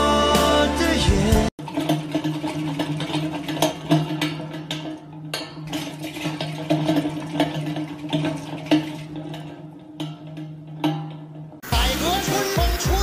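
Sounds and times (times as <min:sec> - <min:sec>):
clattering clicks and knocks: 0:01.5 - 0:11.7
exercise wheel humming: 0:01.6 - 0:13.0.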